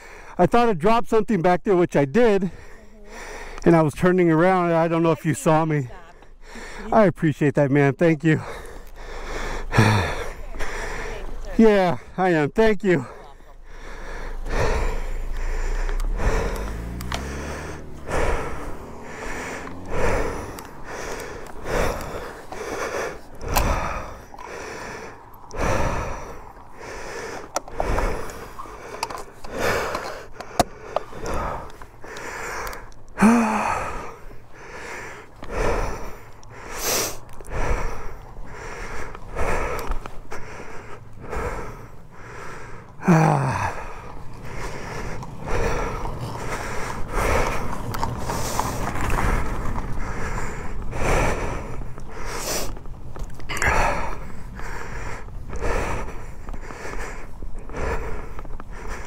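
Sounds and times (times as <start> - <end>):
person breathing hard: 0.0 - 0.4, 2.4 - 3.8, 5.9 - 7.0, 8.3 - 12.2, 13.0 - 59.0
person grunting: 9.7 - 11.0, 33.2 - 34.2, 43.0 - 44.0.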